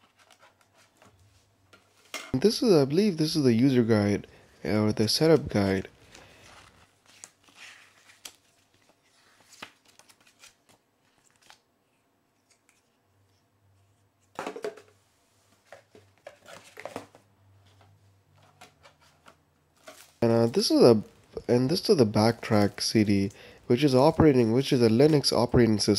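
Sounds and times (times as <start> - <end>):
paper and cardboard rustling: 0.0 - 2.4, 5.4 - 11.6, 15.5 - 21.5.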